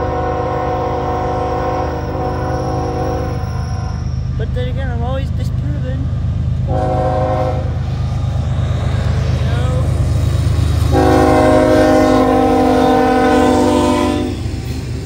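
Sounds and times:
train air horn chord: 0.0s - 4.0s, 6.7s - 7.7s, 10.9s - 14.4s
locomotive engines rumbling: 0.0s - 15.0s.

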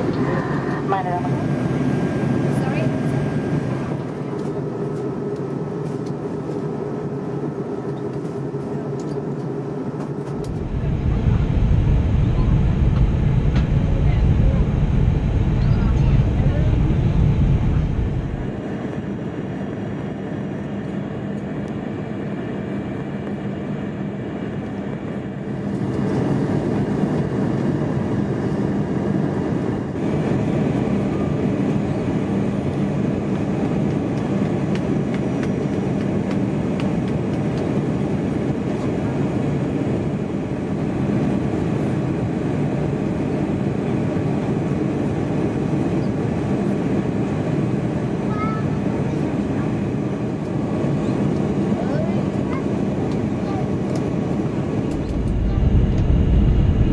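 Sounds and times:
airliner cabin air rush: 0.0s - 56.9s
low hum: 10.0s - 20.6s, 53.5s - 56.9s.

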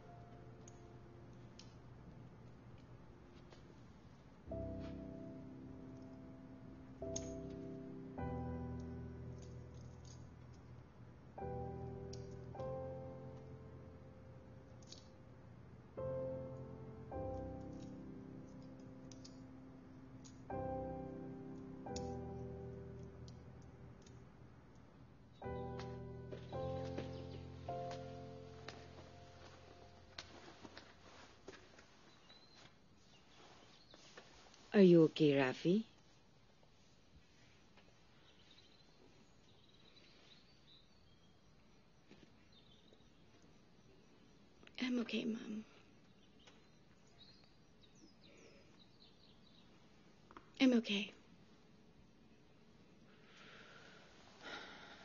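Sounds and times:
soft piano music: 0.0s - 35.9s
faint background hiss: 0.0s - 55.0s
faint high chirps: 37.4s - 51.2s.

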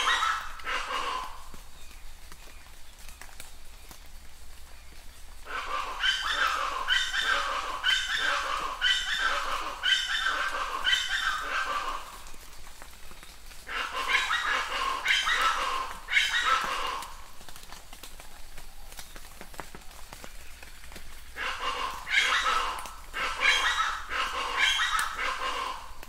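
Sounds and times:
animal calling with falling pitch: 0.0s - 1.4s, 5.5s - 12.1s, 21.4s - 25.9s.

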